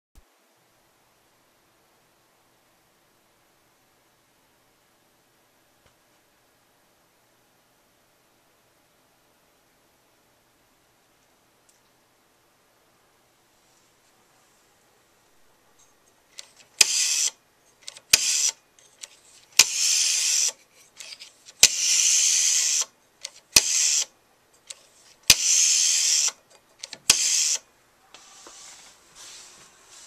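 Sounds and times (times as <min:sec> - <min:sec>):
whir of dial spinning back: 0:16.4 - 0:24.1, 0:24.7 - 0:27.6
rotary dial clicking: 0:16.4 - 0:27.6.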